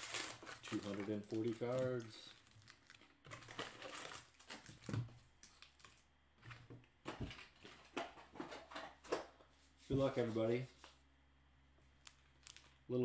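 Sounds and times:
card packs tapping and crinkling: 0.0 - 9.3.

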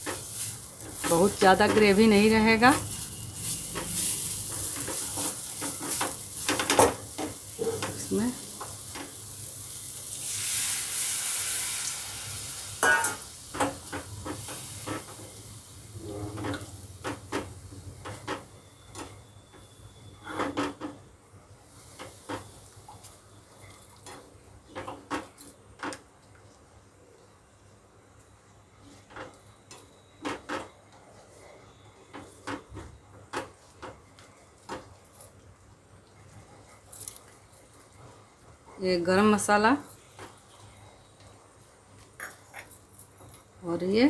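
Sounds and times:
sizzling in a frying pan: 0.0 - 25.3.

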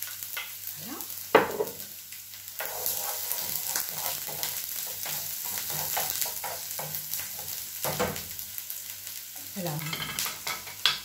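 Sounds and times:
onion sizzling in a frying pan: 0.0 - 11.0
spatula scraping and knocking pan: 2.6 - 8.4.

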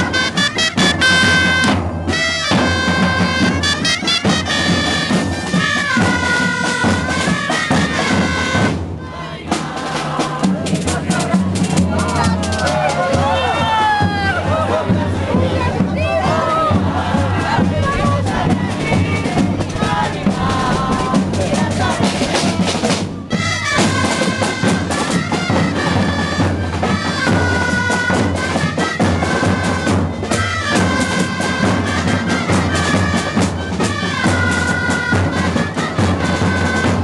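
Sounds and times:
shawm reed melody: 0.0 - 8.7, 15.6 - 33.4
steady drumbeat: 0.0 - 37.0.

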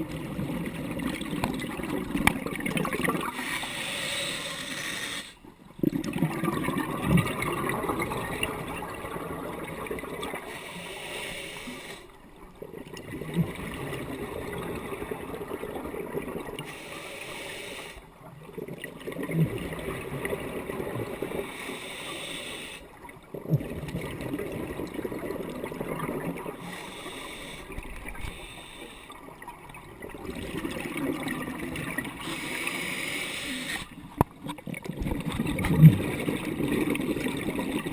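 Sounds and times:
exhaled bubbles gurgling: 0.0 - 4.4, 5.5 - 11.0, 11.6 - 17.2, 18.0 - 21.8, 22.8 - 37.9
regulator breathing underwater: 3.3 - 5.5, 10.4 - 12.2, 16.6 - 18.1, 21.2 - 23.0, 26.5 - 29.4, 32.0 - 34.0.

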